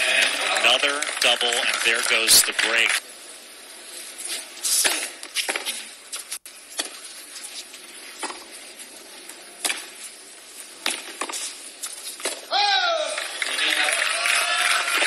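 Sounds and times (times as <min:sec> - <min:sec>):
tennis ball struck by rackets: 0:04.7 - 0:05.8, 0:09.6 - 0:09.9, 0:10.8 - 0:11.5.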